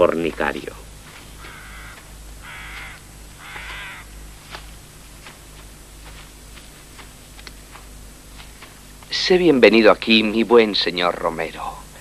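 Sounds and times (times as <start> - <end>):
crow cawing: 1.2 - 4.7.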